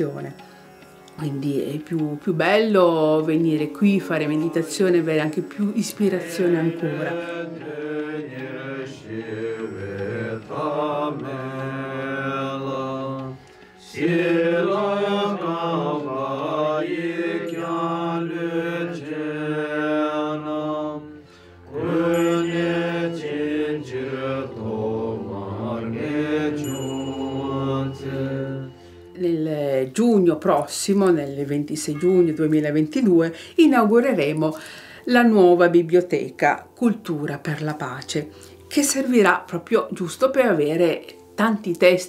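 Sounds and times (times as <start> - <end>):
monks chanting: 6.1 - 28.7.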